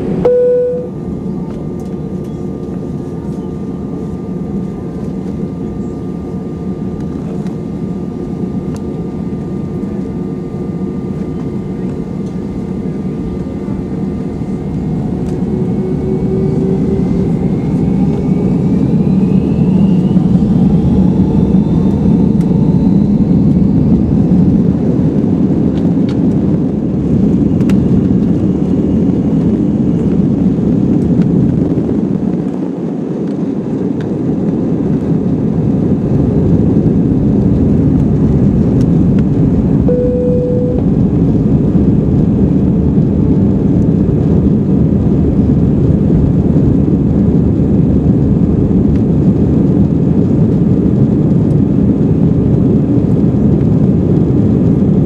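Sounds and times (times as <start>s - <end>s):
jet engines spooling up: 14.7s - 24.8s.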